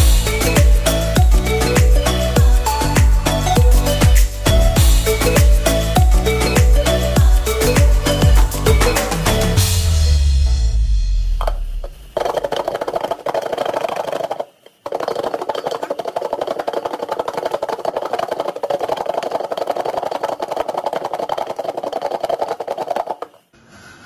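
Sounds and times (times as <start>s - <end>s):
fruit slices rattling in a lidded bowl: 12.0s - 23.5s.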